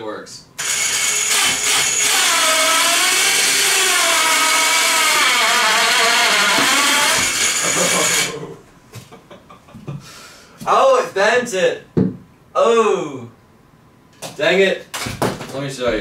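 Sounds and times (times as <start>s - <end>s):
electric winch motor whining: 0.6s - 8.4s.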